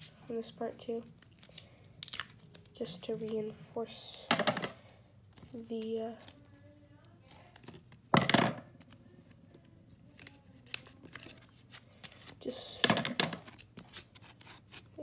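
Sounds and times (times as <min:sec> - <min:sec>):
paper rustling: 0:10.1 - 0:12.4.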